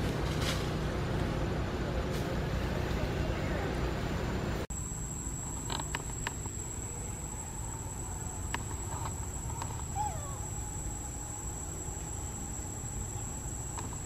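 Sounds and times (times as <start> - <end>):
high-pitched insect drone: 4.7 - 14.0.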